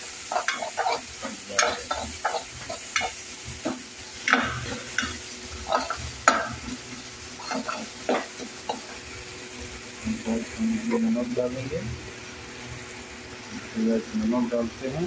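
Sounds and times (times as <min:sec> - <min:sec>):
frying oil sizzling: 0:00.0 - 0:15.0
ladle scraping a pan: 0:00.2 - 0:09.1.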